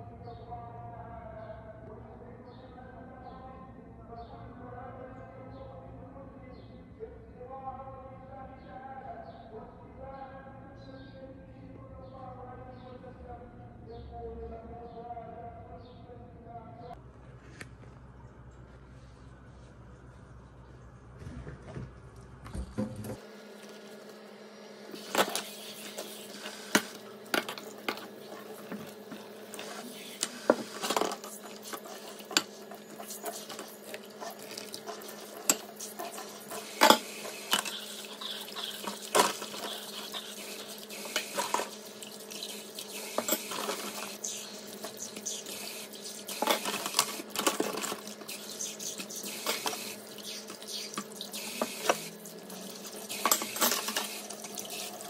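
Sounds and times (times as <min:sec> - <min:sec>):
dishes clinking against steel: 0:35.4 - 0:35.8, 0:53.1 - 0:54.2.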